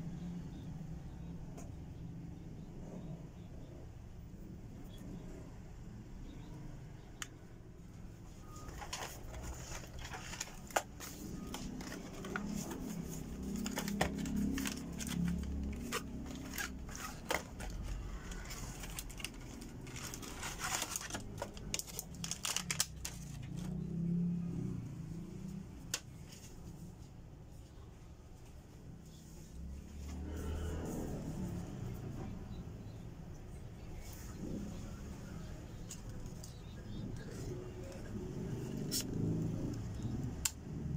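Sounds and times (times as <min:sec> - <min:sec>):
plastic packaging crinkling: 0:08.4 - 0:23.7
cardboard boxes tapping and clicking: 0:08.8 - 0:17.8.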